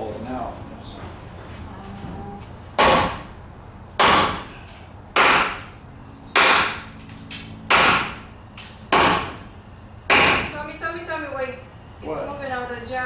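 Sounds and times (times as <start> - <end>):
hammer striking wooden board: 2.8 - 3.3, 4.0 - 4.5, 5.2 - 5.7, 6.3 - 6.9, 7.7 - 8.2, 8.9 - 9.4, 10.1 - 10.5.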